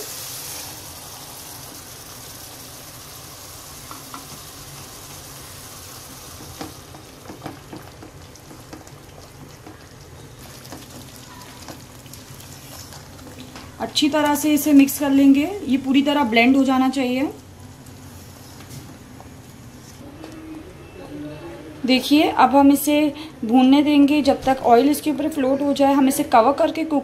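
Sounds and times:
oil sizzling in a pan: 0:00.0 - 0:15.2.

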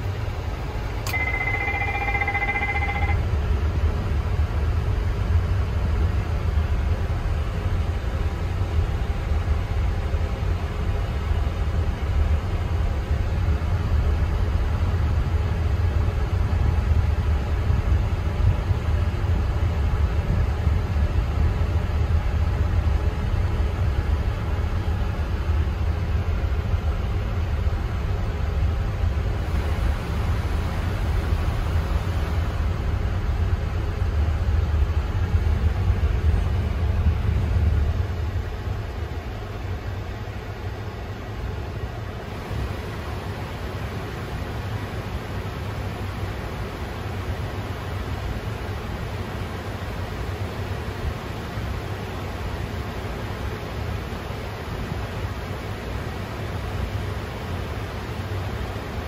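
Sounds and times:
steady low rumble: 0:00.0 - 0:46.1
two-pitched electronic tone: 0:01.1 - 0:03.2.

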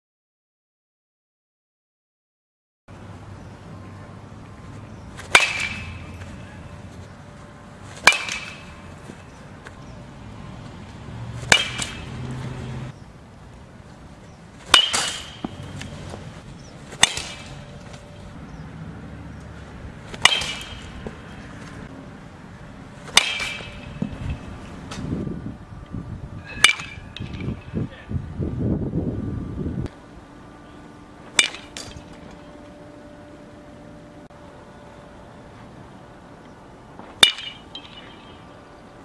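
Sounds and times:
metal bat hitting balls: 0:04.9 - 0:06.8, 0:07.9 - 0:09.9, 0:11.4 - 0:12.9, 0:14.6 - 0:18.3, 0:20.1 - 0:21.9, 0:23.0 - 0:25.1, 0:26.4 - 0:27.9, 0:31.2 - 0:32.9, 0:37.0 - 0:38.6.

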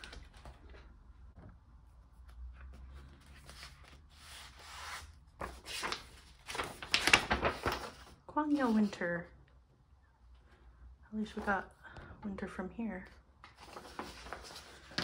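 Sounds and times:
paper rustling and rubbing: 0:02.2 - 0:09.0, 0:13.5 - 0:15.0.

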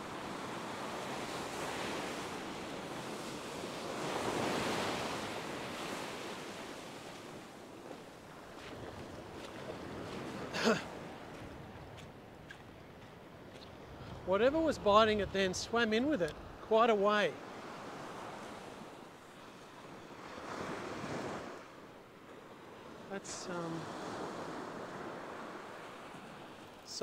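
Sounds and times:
waves breaking on beach: 0:00.0 - 0:27.0.

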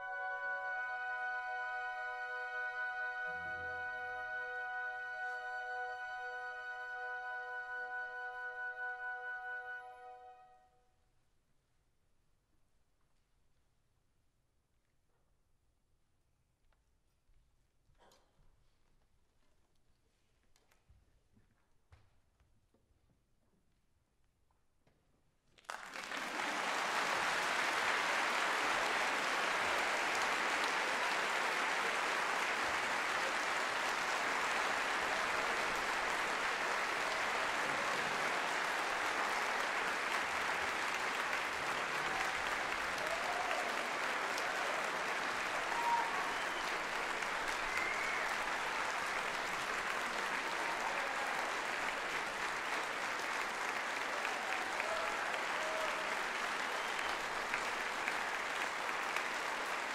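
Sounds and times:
audience applause: 0:25.6 - 0:59.9.

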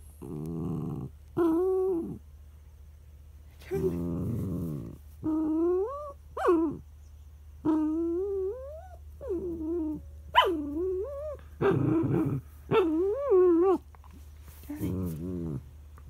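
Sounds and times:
dog whining: 0:03.7 - 0:06.8, 0:07.6 - 0:13.9
dog yelping: 0:10.3 - 0:11.8.

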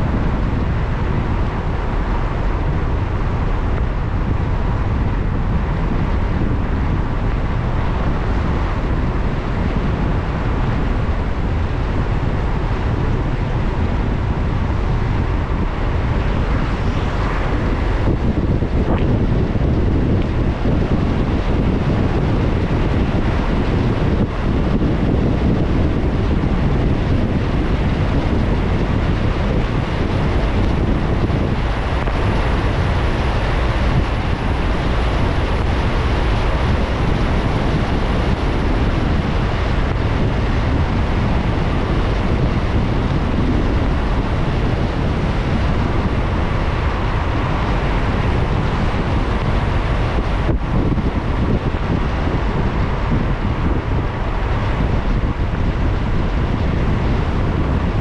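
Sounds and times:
car tyres on wet road: 0:00.0 - 0:58.0
wind: 0:00.0 - 0:58.0.

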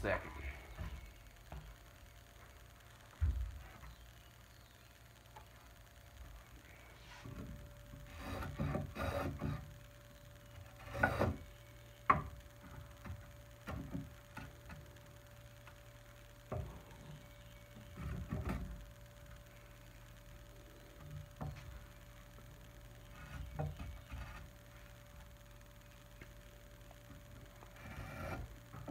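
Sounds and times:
block plane scraping wood: 0:08.0 - 0:09.6, 0:10.8 - 0:11.4, 0:27.7 - 0:28.9.

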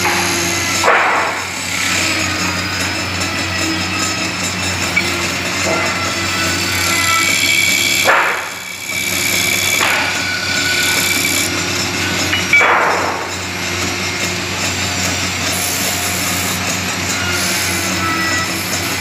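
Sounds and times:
woodworking machine humming: 0:00.0 - 0:19.0
harsh cutting bursts on wood: 0:05.0 - 0:12.3.

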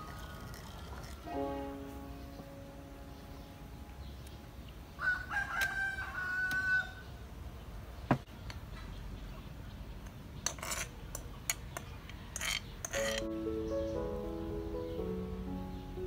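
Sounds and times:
spoon scraping clay mortar: 0:00.0 - 0:01.4, 0:10.4 - 0:13.3
rooster crowing: 0:05.0 - 0:07.1.

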